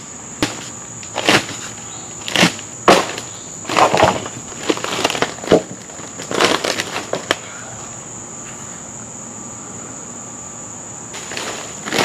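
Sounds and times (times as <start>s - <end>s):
high insect drone: 0.0s - 12.0s.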